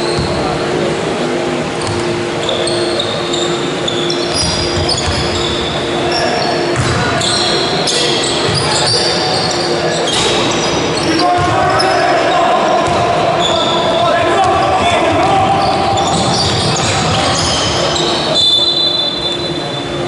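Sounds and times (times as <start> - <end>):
trainers squeaking on floor: 1.8 - 12.5, 15.5 - 20.0
basketball bouncing: 4.3 - 5.4, 6.7 - 7.0, 12.8 - 13.1.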